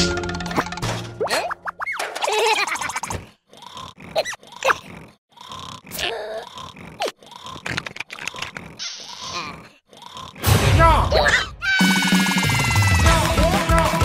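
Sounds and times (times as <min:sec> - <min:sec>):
munching crunches and slurps: 0:03.2 - 0:10.4
cartoon character grunting: 0:09.0 - 0:10.4, 0:11.1 - 0:11.7.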